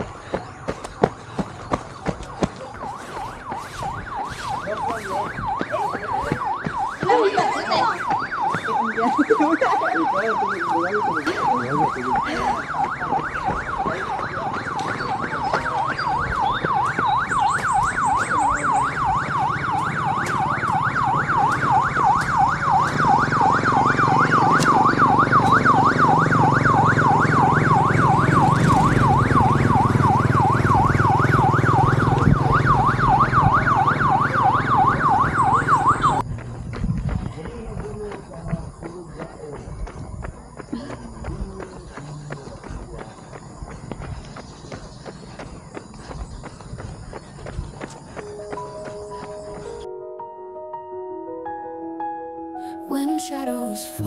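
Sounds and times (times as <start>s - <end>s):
electronic yelp siren: 2.1s - 36.3s, 38.3s - 41.8s, 46.4s - 50.3s.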